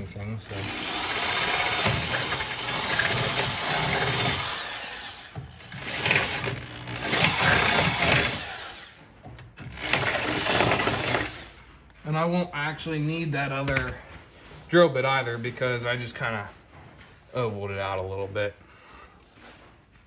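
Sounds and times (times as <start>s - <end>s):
electric drill boring plastic: 0.6s - 9.0s, 9.7s - 11.5s.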